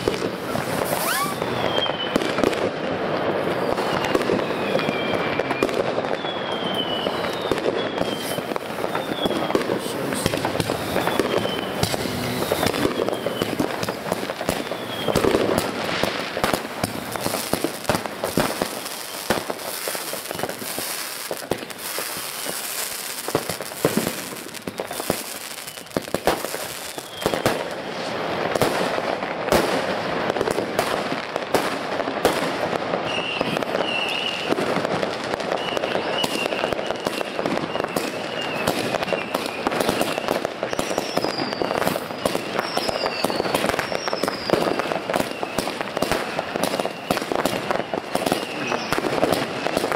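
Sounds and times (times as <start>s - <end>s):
warbling firework whistles: 0.0s - 2.5s, 3.4s - 28.3s, 33.0s - 34.8s, 35.4s - 49.9s
fireworks launching and crackling: 0.0s - 49.9s
short falling whistles: 0.9s - 2.2s, 6.2s - 9.6s, 10.9s - 13.6s, 14.6s - 15.2s, 37.6s - 44.6s.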